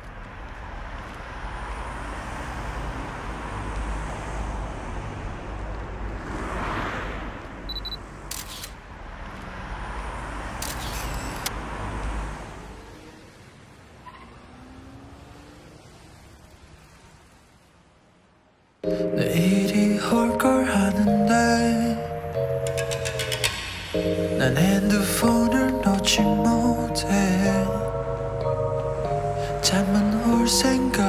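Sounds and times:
traffic rumble: 0.0s - 31.0s
car swishing past: 6.0s - 7.6s
camera shutter click: 8.3s - 8.8s, 10.6s - 11.5s.

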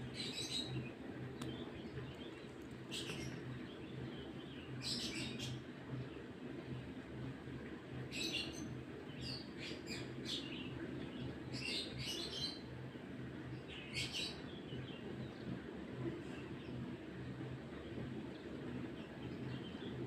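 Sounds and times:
small birds chirping: 0.0s - 5.6s
low steady hum: 0.0s - 20.0s.

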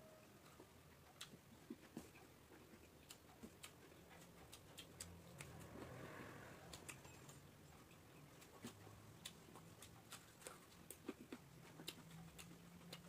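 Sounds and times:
mouth clicks and chewing: 0.4s - 13.0s.

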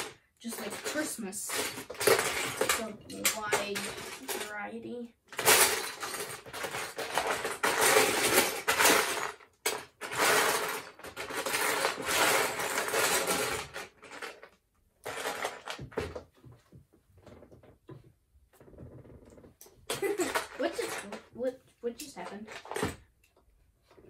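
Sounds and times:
plastic bricks clattering in bin: 0.0s - 4.6s, 5.3s - 16.1s, 19.9s - 21.2s.

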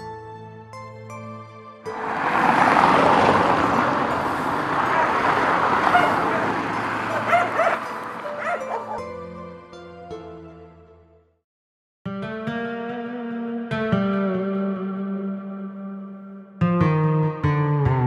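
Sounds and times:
steady street rushing noise: 1.9s - 9.2s
dog barking: 5.8s - 9.1s.

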